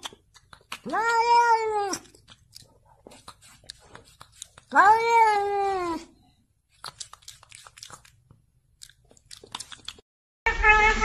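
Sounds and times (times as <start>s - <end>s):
cat meowing: 0.8s - 2.1s, 4.7s - 6.1s, 10.5s - 11.0s.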